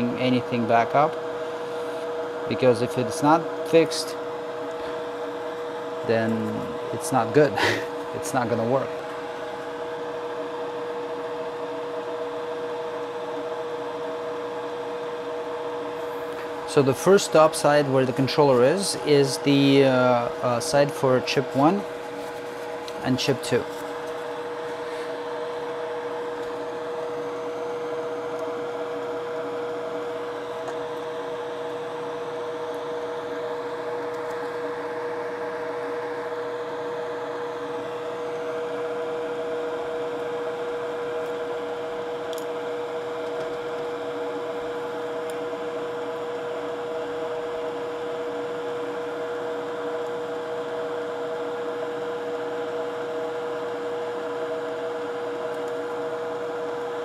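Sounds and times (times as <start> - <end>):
fan motor hum and hiss: 0.0 - 57.0.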